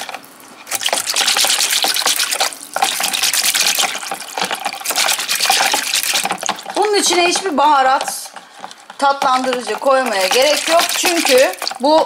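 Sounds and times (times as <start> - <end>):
whisk sloshing in a bowl: 0.0 - 12.0.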